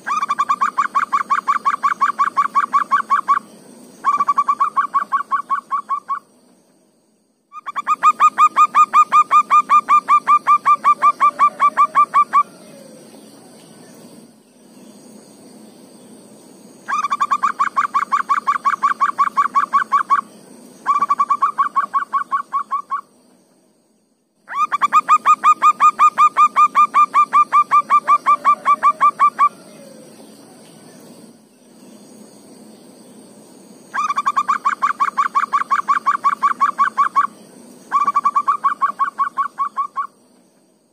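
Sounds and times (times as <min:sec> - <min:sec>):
dove cooing: 0:07.6 - 0:13.2, 0:24.5 - 0:30.2, 0:37.9 - 0:40.1.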